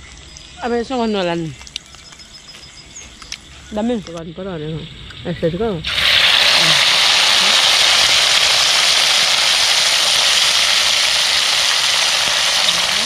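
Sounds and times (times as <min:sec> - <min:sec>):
fish sizzling in hot oil: 0:05.8 - 0:13.0.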